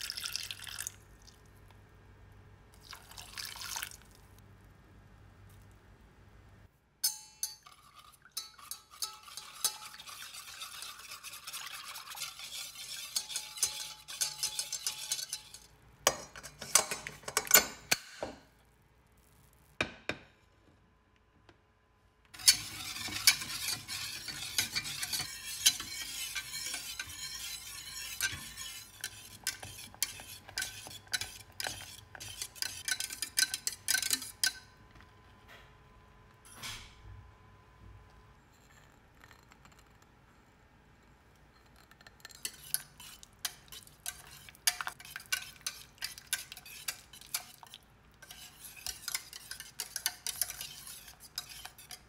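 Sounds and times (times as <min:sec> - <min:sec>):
whisk beating in a metal saucepan: 0:07.1 - 0:17.7, 0:22.4 - 0:34.6, 0:42.0 - 0:52.0.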